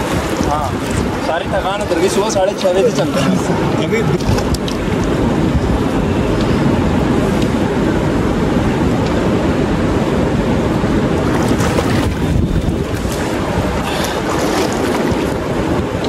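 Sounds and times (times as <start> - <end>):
river rushing over boulders: 0.0 - 5.9, 10.0 - 16.0.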